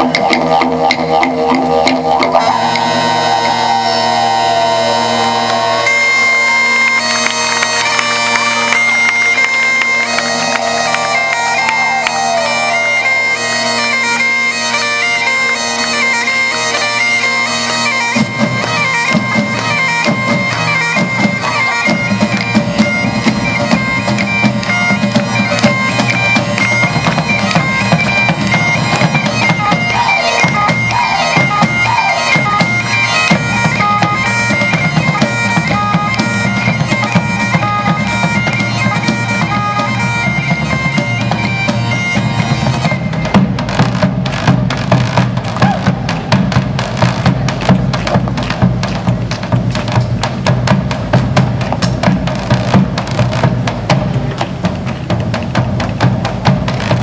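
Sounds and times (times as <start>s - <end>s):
drums: 0.0s - 6.7s, 16.1s - 57.0s
bagpipes playing melody: 0.0s - 54.7s.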